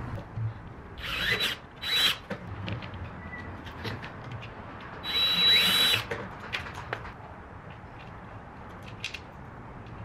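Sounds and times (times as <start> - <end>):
cordless drill motor: 1.0 - 2.2, 5.0 - 6.1.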